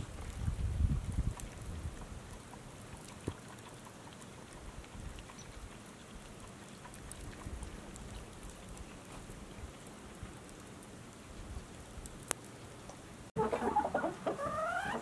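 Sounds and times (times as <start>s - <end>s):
hiss of wind-driven snow: 0.0s - 2.9s
soft ticks: 12.0s - 13.0s.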